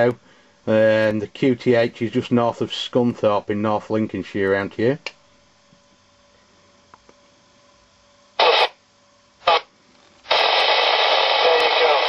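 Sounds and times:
radio static hiss: 0:00.0 - 0:03.1, 0:08.4 - 0:08.8, 0:09.4 - 0:12.0.

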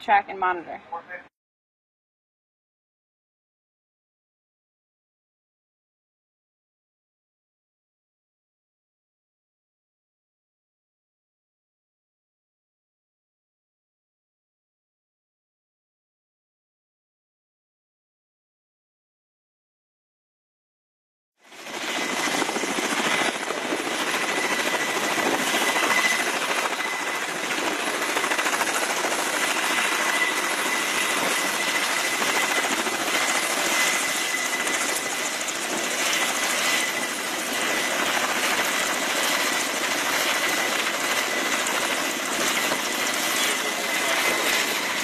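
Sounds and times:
helicopter rotor and engine noise: 0:21.4 - 0:45.0.

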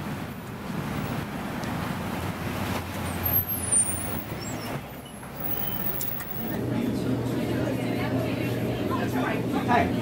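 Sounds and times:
passing cars rumbling: 0:00.0 - 0:10.0.

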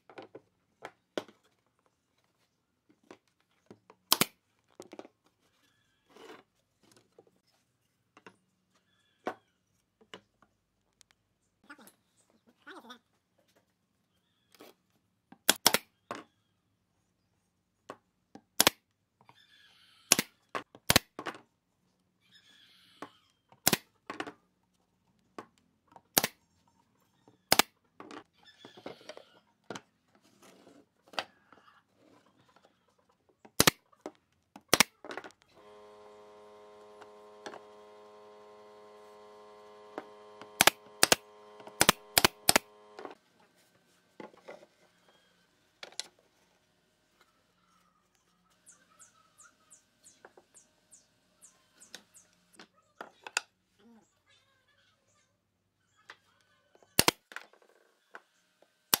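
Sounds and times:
machine hum: 0:35.5 - 0:43.4
pneumatic nailer shots: 0:35.6 - 0:43.2, 0:57.0 - 0:57.2.

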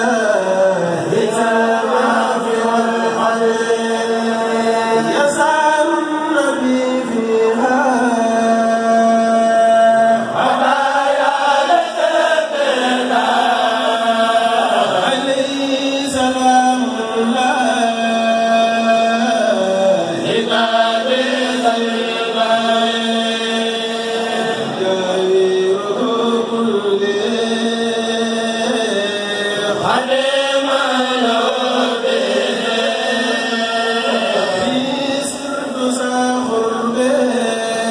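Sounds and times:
men chanting into microphones: 0:00.0 - 0:37.9.

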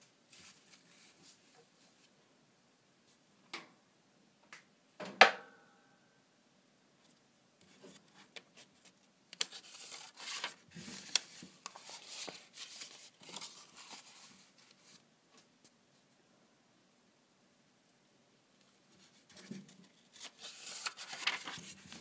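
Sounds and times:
paper pages rustling: 0:00.3 - 0:02.1, 0:07.7 - 0:15.0, 0:19.0 - 0:22.0.

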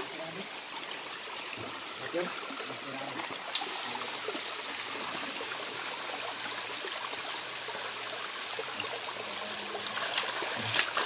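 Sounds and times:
stream running over rocks: 0:00.0 - 0:11.0.

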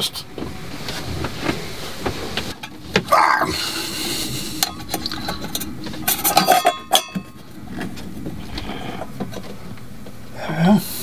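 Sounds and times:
metal clinking and rattling: 0:04.6 - 0:08.6
sharp ringing clinks: 0:06.2 - 0:07.4.

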